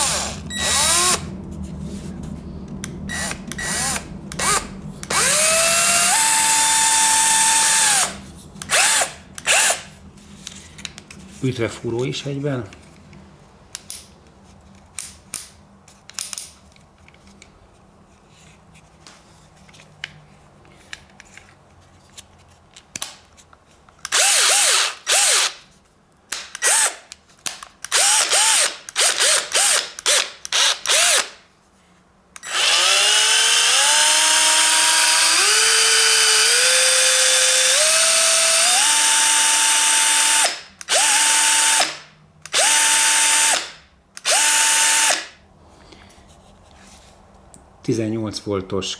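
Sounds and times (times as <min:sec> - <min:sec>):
drill motor whining: 0:00.0 - 0:01.3, 0:03.1 - 0:09.9, 0:24.1 - 0:25.6, 0:26.6 - 0:27.0, 0:27.9 - 0:31.3, 0:32.4 - 0:45.2.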